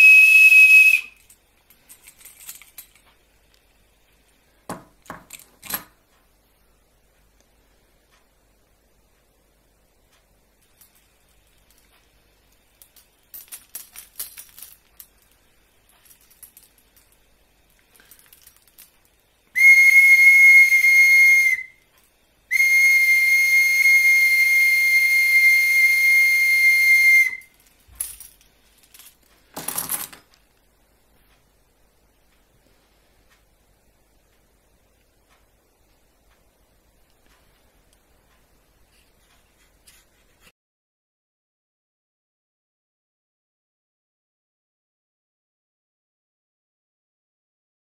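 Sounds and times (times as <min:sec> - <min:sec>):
high-pitched breathy whistle: 0:00.0 - 0:01.3, 0:19.6 - 0:21.8, 0:22.5 - 0:27.5.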